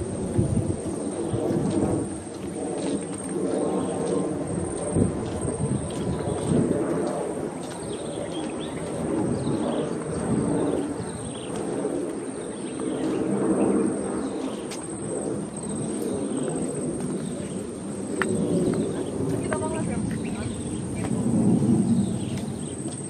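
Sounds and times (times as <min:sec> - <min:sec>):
steady low rumble: 0:00.0 - 0:23.0
birds chirping: 0:07.6 - 0:23.0.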